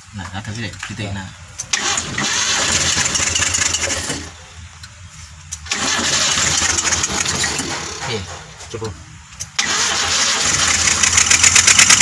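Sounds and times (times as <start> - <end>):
misfiring car engine: 1.6 - 4.5, 5.6 - 8.4, 9.5 - 12.0.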